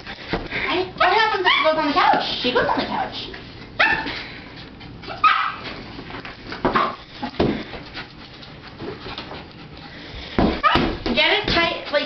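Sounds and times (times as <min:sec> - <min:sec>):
dog barking: 0:03.8 - 0:04.1, 0:05.2 - 0:05.6, 0:10.6 - 0:10.9.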